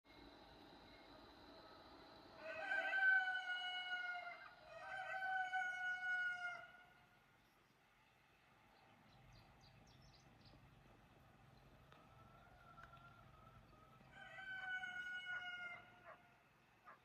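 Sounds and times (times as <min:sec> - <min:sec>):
rooster crowing: 0:02.4 - 0:07.0, 0:11.9 - 0:16.3.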